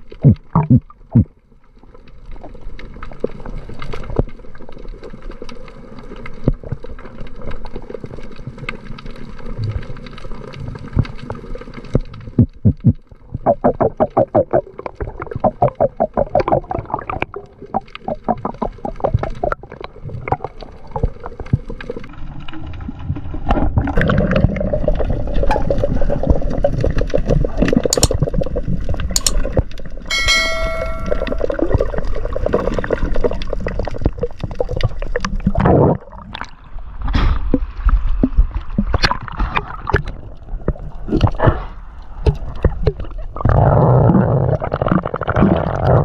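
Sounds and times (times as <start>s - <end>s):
underwater low rumble: 0.0s - 46.0s
underwater clicks and knocks: 11.9s - 22.0s, 25.4s - 35.6s.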